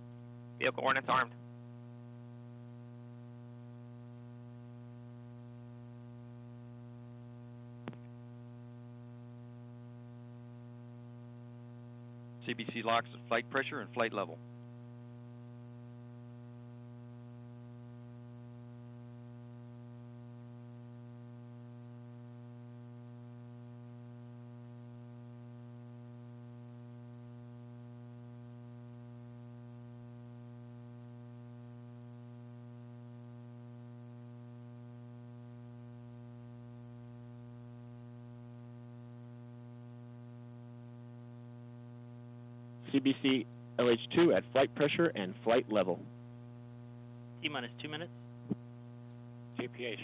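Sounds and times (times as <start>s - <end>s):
electrical mains hum: 0.0s - 50.0s
faint hiss: 42.8s - 46.1s.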